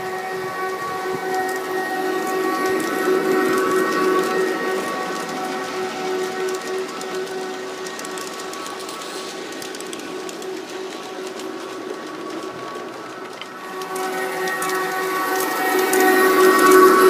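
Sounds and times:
electric locomotive whine: 0:00.0 - 0:17.0
train wheels clicking over rail joints: 0:00.0 - 0:17.0.

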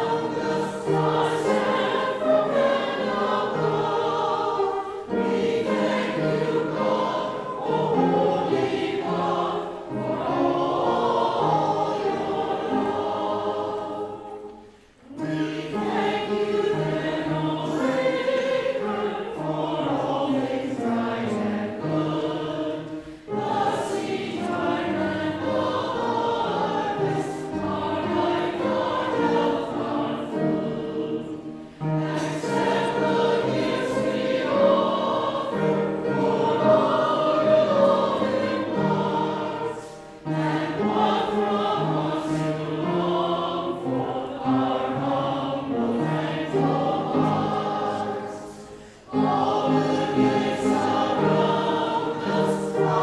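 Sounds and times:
choir singing in parts: 0:00.0 - 0:53.0
singers breathing: 0:22.9 - 0:23.3, 0:48.5 - 0:49.2.

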